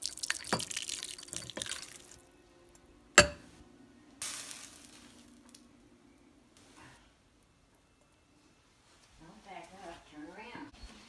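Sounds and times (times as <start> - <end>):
faint steady hum: 1.2 - 9.5
fork clinking against bowl: 3.2 - 3.4.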